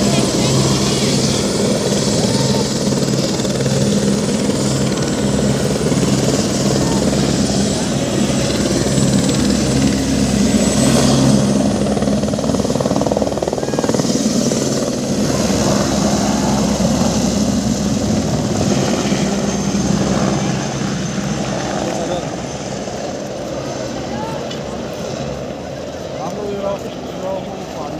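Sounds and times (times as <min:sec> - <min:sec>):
helicopter rotor beat: 0:00.0 - 0:27.9.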